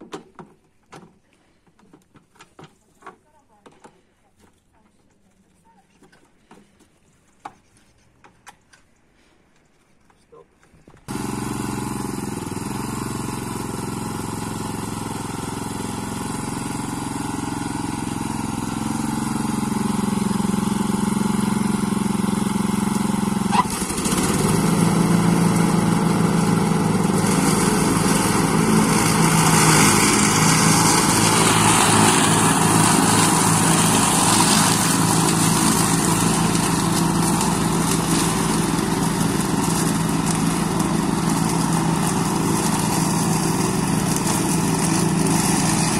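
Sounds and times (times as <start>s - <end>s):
ride-on mower engine running: 11.1s - 45.9s.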